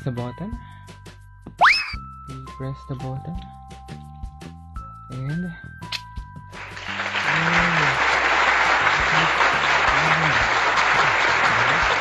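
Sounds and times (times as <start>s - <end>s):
crowd applause: 6.6s - 12.0s.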